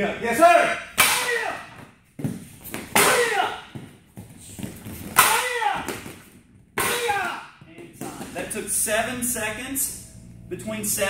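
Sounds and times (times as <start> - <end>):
person shouting: 0.4 - 1.7, 3.0 - 3.7, 5.2 - 6.0, 6.8 - 7.6.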